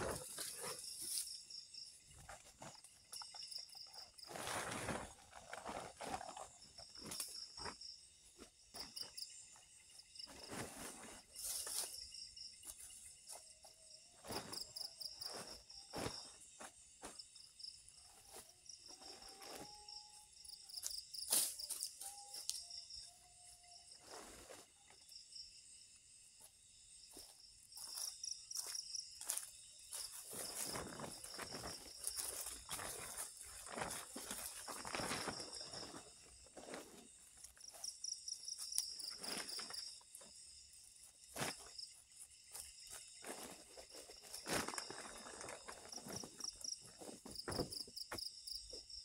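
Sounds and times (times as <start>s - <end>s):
insects trilling: 0.0s - 49.0s
footsteps on leaf litter: 4.2s - 7.2s, 27.8s - 38.0s, 41.0s - 47.6s.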